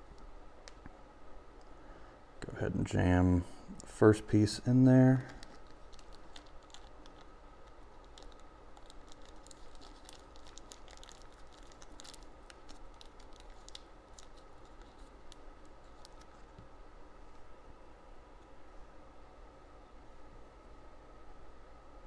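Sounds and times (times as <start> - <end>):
plastic bag crinkling and clicking: 5.2 - 16.6.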